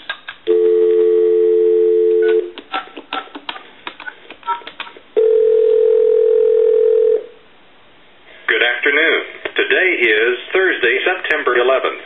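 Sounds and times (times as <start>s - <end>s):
dial tone: 0.5s - 2.5s, 5.2s - 7.3s
keypad clicks: 2.2s - 5.0s.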